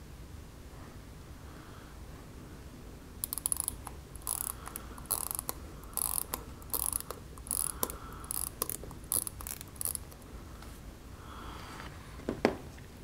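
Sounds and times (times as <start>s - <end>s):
watch ratchet clicks: 3.2s - 10.2s.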